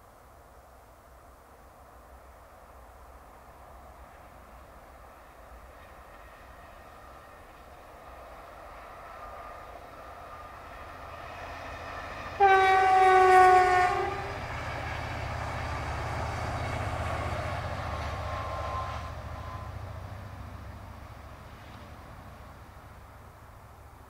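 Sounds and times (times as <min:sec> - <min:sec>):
train rumbling past: 0:01.0 - 0:24.0
train horn: 0:12.3 - 0:14.6, 0:18.1 - 0:19.8.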